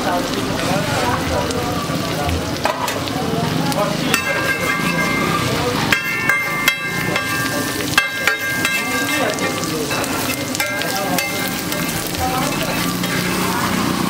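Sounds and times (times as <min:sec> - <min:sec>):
egg sizzling on a griddle: 0:00.0 - 0:14.0
spatula clanking on iron: 0:04.1 - 0:13.9
metal spatula scraping griddle: 0:04.1 - 0:14.0.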